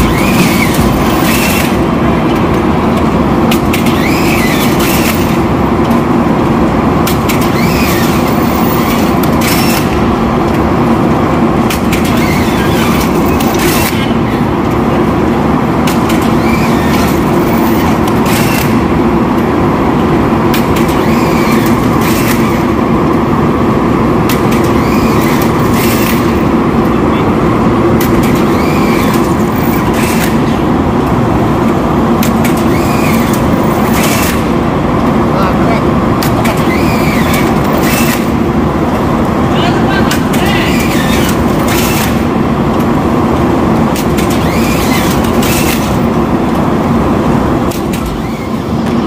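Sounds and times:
loud machine drone: 0.0 - 49.0
strapping machine clacks: 40.1 - 46.6.

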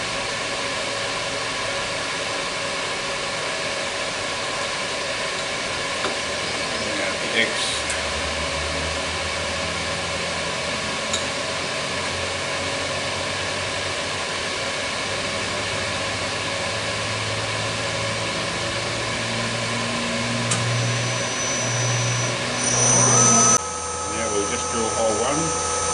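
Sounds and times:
machine motor humming: 14.9 - 25.9.

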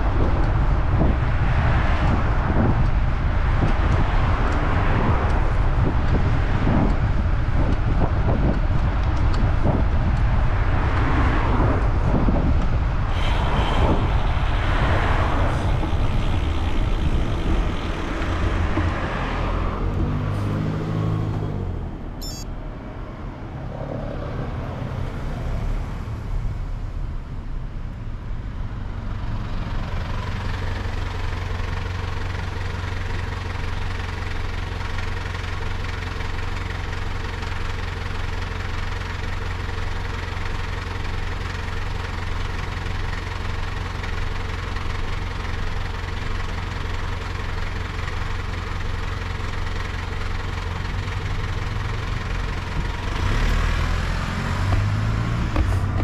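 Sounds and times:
wind rumble on microphone: 0.0 - 20.2
vehicle engine humming: 0.0 - 56.0
vehicles passing on highway: 0.0 - 56.0.

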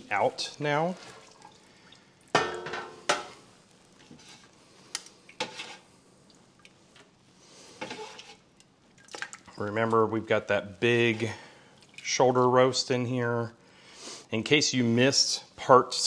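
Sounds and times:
metal utensil clanking on pot: 2.4 - 3.4.

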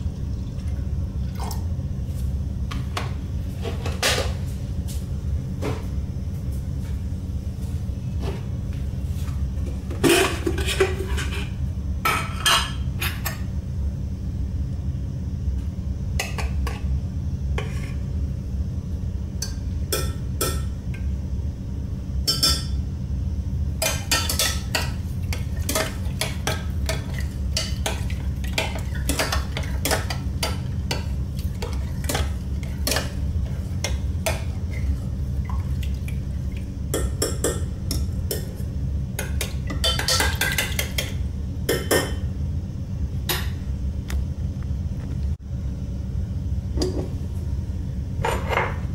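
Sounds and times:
low hum: 0.0 - 12.1.

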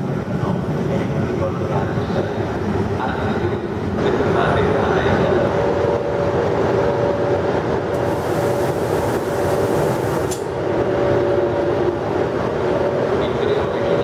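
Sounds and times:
electric locomotive humming and whining: 0.0 - 14.0
air hiss: 8.0 - 10.5.

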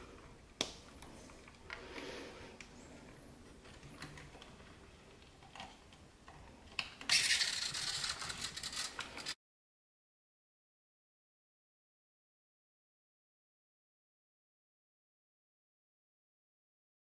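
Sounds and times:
dense crackling rattle: 7.1 - 9.4.

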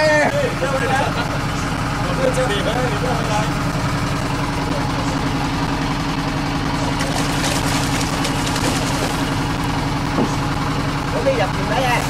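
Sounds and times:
boat engine droning: 0.0 - 12.0
fish splashing at surface: 6.8 - 9.8.

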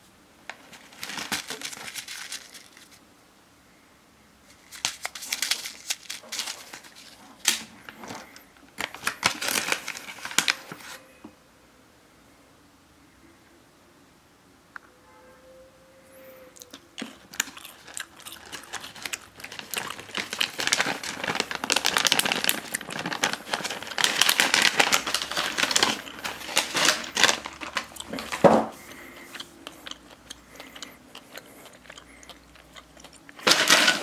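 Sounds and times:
foil pouch crinkling: 0.5 - 3.0, 4.5 - 11.0, 17.0 - 30.9, 31.7 - 34.0.

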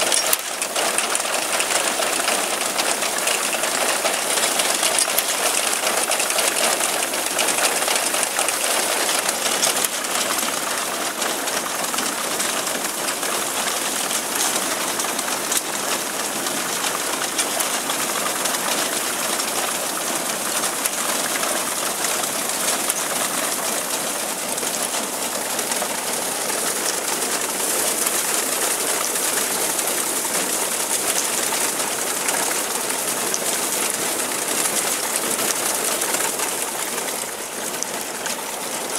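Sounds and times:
mechanical clatter of reaper: 0.0 - 12.2
tractor engine running: 0.0 - 38.9.

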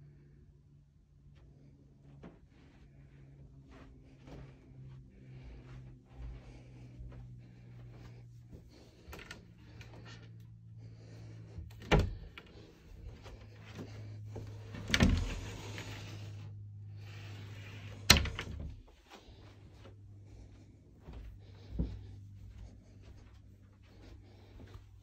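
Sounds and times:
closet door knocks and clicks: 11.7 - 12.4.

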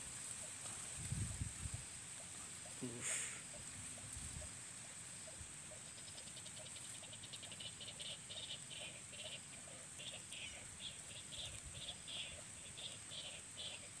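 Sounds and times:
frogs calling: 2.0 - 14.0.

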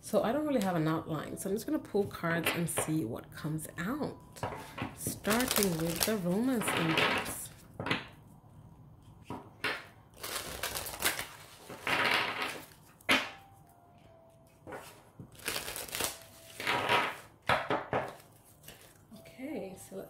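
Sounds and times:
cards shuffling: 5.1 - 7.6, 9.7 - 13.1, 14.6 - 17.3, 18.0 - 19.2.

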